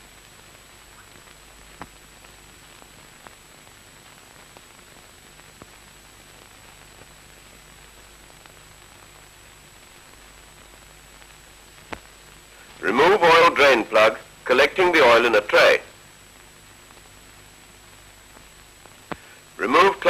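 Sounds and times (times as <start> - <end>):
film soundtrack hiss: 0.0 - 20.0
faint clicks: 11.2 - 12.8.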